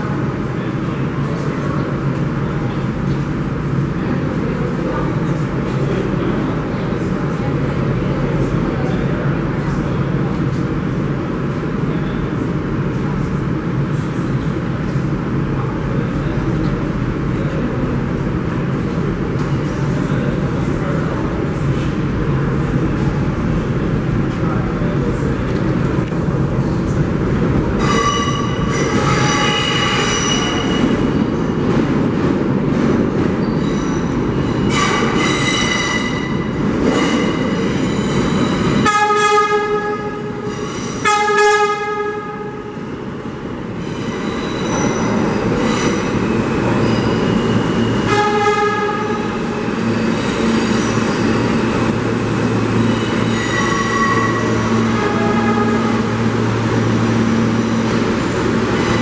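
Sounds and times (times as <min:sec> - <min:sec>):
subway train rumble: 0:00.0 - 0:59.0
train horn blasts: 0:38.8 - 0:42.7, 0:48.0 - 0:49.3, 0:53.4 - 0:56.3
high-pitched wheel squeal: 0:52.8 - 0:54.7.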